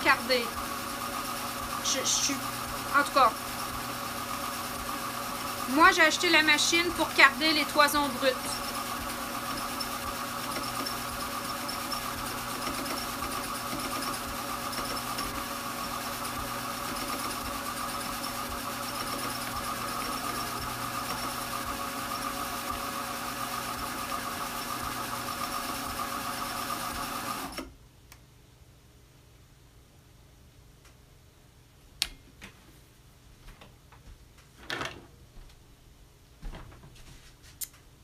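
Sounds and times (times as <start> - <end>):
drum carder whirring: 0.0 - 27.6.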